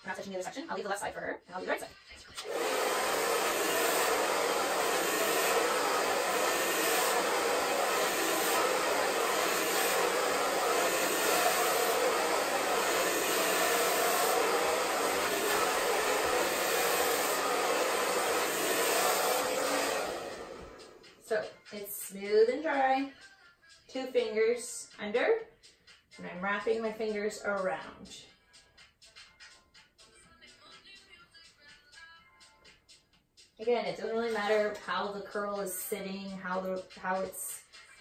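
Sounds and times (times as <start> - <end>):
hair dryer running: 2.4 - 21.5.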